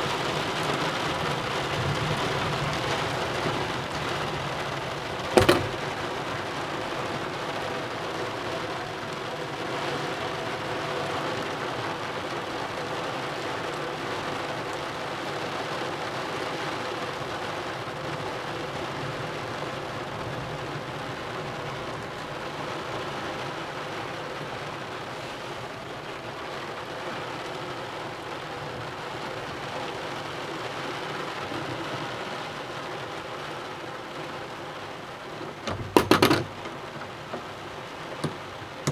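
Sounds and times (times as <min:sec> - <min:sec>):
heavy rain pattering on a roof: 0:00.0 - 0:38.9.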